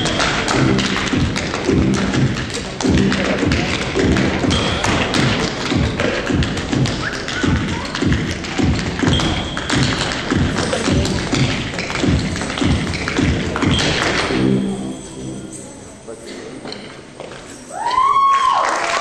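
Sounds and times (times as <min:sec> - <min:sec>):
tap shoes clicking on stage: 0:00.0 - 0:14.6
backing music: 0:00.0 - 0:17.0.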